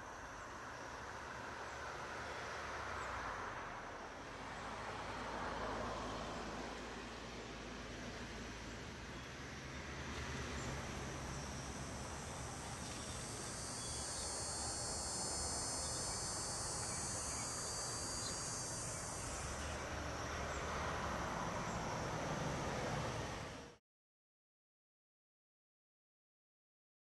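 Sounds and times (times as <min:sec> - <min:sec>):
insects trilling: 0:10.5 - 0:22.7.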